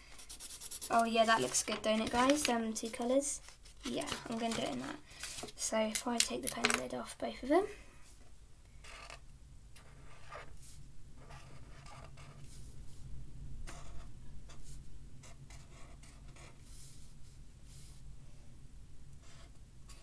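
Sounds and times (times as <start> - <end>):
faint low hum: 0.0 - 20.0
marker pen scratching on paper: 0.1 - 6.7, 8.8 - 9.2, 9.8 - 12.7, 13.6 - 17.0, 19.2 - 20.0.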